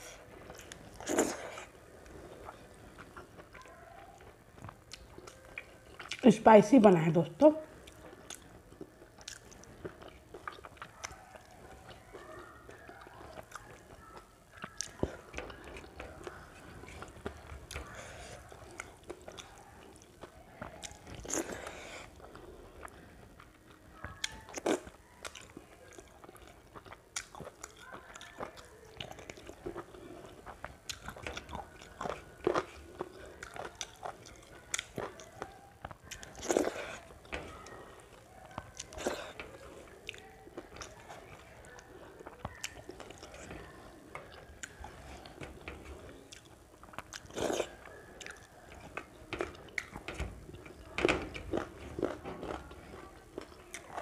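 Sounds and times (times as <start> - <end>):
person chewing: 0.0 - 6.2, 7.7 - 54.0.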